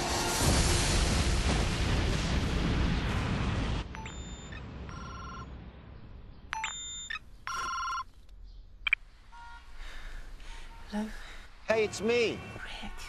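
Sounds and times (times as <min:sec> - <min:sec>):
electronic phone ringtone: 0:04.0 - 0:05.5, 0:06.6 - 0:08.1.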